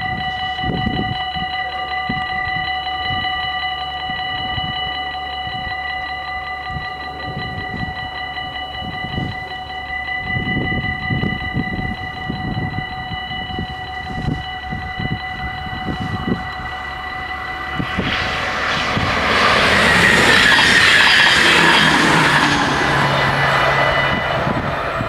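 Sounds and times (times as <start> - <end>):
level crossing warning bells: 0.0 - 25.0
low rumble: 15.0 - 25.0.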